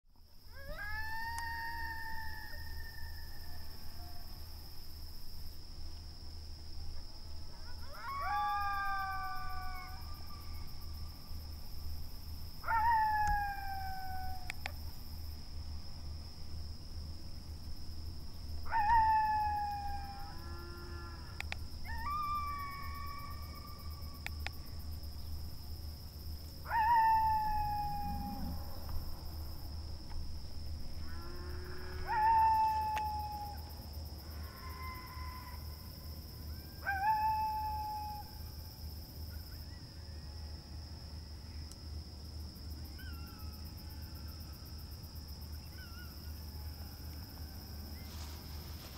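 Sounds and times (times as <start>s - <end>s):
coyote howls: 0.5s - 4.3s, 7.5s - 10.8s, 12.6s - 14.8s, 18.6s - 24.3s, 26.6s - 28.9s, 31.0s - 33.7s, 34.3s - 35.8s, 36.4s - 38.5s, 42.9s - 44.6s, 45.5s - 48.8s.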